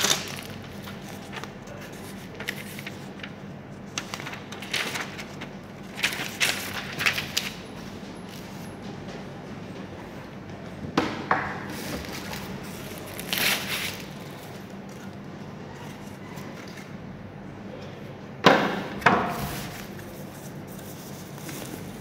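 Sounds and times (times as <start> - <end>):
packaging rustling: 0.0 - 3.2.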